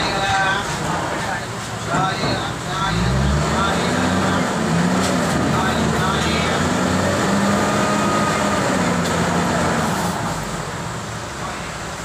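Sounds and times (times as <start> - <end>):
diesel engine running hard: 0.0 - 12.0.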